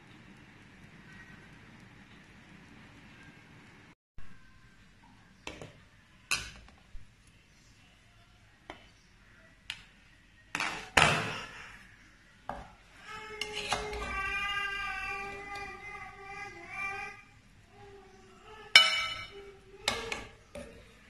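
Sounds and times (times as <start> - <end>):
spoon scraping through rice: 13.4 - 14.1.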